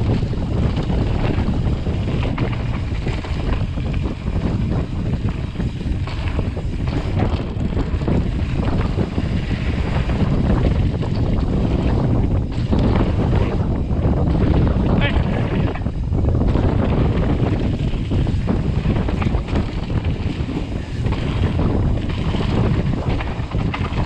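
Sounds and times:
bike clattering over bumps: 0.0 - 24.0
tyres rumbling on dirt: 0.0 - 24.0
wind rushing over microphone: 0.0 - 24.0.

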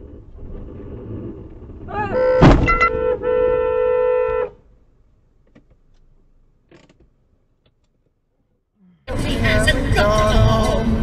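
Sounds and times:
car horn: 2.0 - 4.7.

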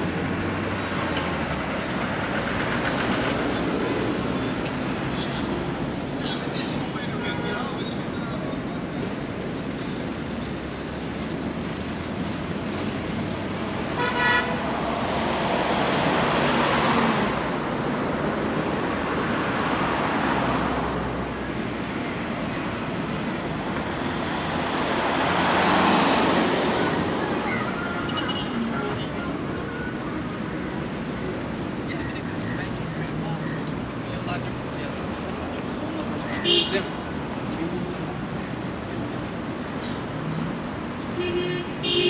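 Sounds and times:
cars passing: 0.0 - 42.0.

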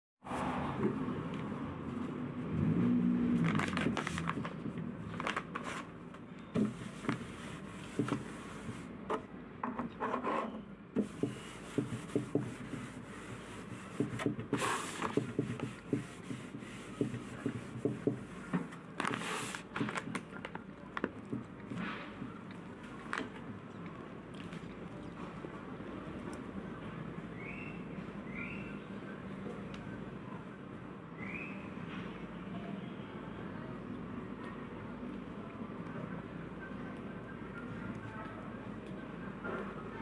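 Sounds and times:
handling rubbing and scraping: 6.6 - 19.9.

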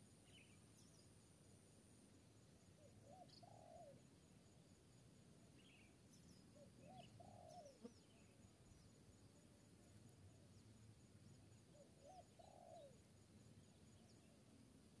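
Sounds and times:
dove cooing: 3.1 - 4.0, 6.8 - 7.9, 12.0 - 13.0.

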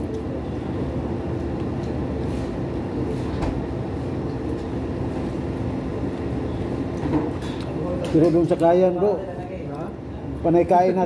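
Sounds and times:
low hum and rumble: 0.0 - 8.2.

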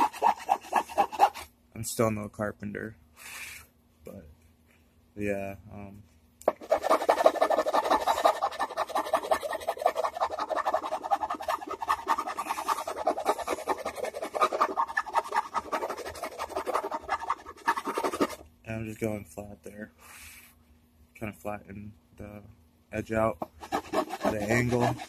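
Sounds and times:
hand file scraping wood: 0.0 - 1.5, 6.5 - 18.4, 23.3 - 25.0.

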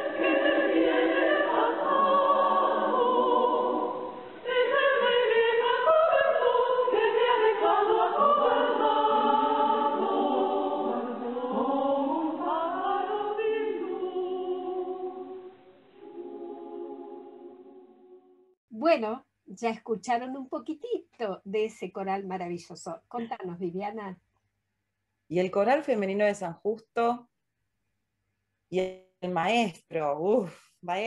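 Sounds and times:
women's choir singing: 0.0 - 18.3.

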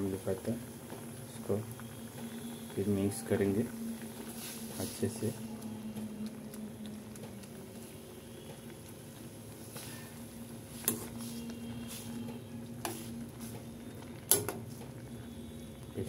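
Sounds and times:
curry simmering in a pan: 0.0 - 16.0
low hum: 1.8 - 14.2.

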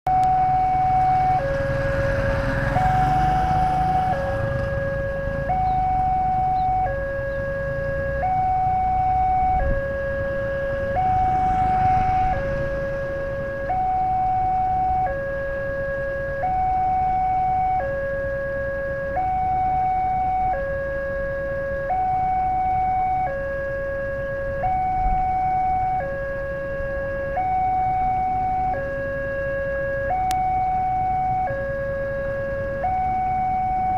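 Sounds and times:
level crossing alarm two-tone: 2.8 - 10.4.

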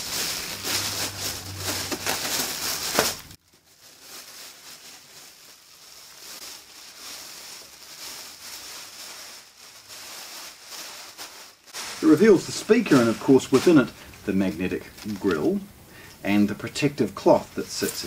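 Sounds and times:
plastic bag crinkling: 0.0 - 15.7, 16.6 - 18.0.

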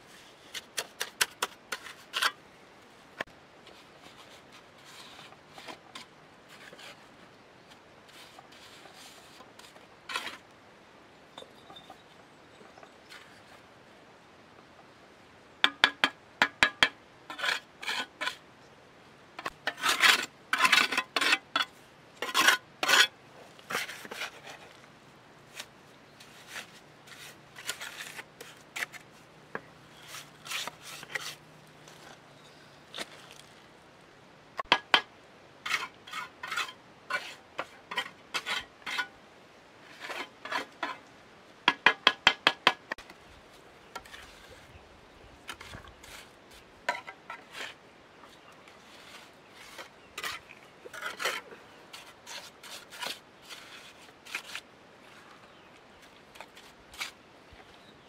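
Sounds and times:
trowel scraping mortar: 0.1 - 2.4, 8.1 - 10.5, 17.3 - 18.4, 19.4 - 24.8, 25.5 - 32.2, 35.6 - 39.1, 39.8 - 41.0, 48.7 - 55.2, 56.0 - 57.2
trowel tapping bricks: 15.6 - 17.5.

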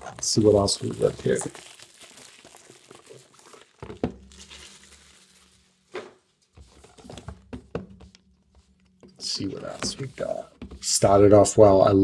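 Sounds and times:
box knocking on table: 7.2 - 8.2.

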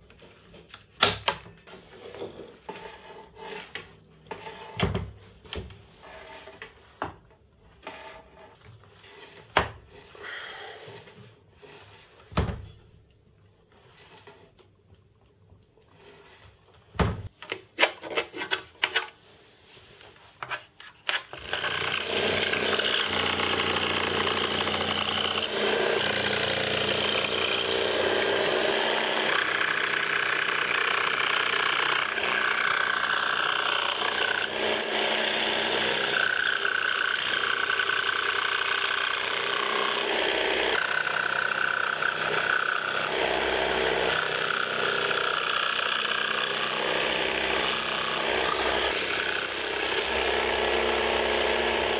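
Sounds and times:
power saw cutting plywood: 21.0 - 51.9.

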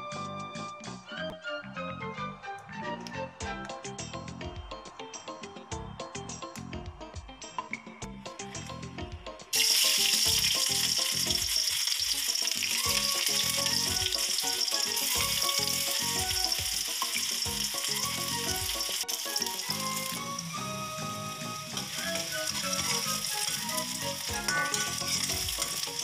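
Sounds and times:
background music: 0.0 - 26.0
oil sizzling in a wok: 9.5 - 26.0.

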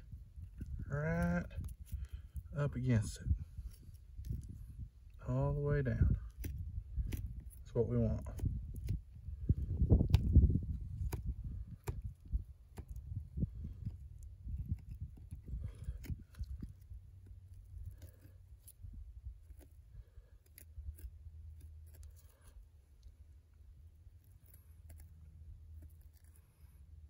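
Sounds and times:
knife scraping meat and bone: 3.6 - 4.7, 5.8 - 10.3, 13.6 - 22.7, 24.1 - 26.9.

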